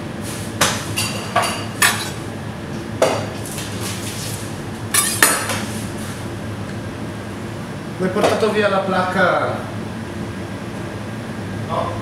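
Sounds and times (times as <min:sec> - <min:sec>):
steady background hum: 0:00.0 - 0:12.0
pans and utensils clinking: 0:01.0 - 0:02.2, 0:04.9 - 0:05.6.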